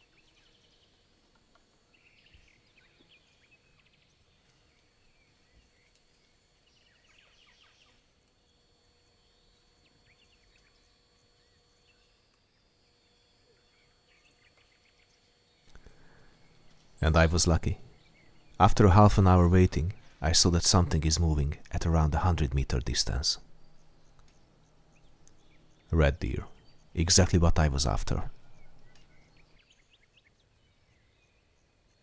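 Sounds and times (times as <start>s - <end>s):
faint bird chirps: 0.0s - 20.4s.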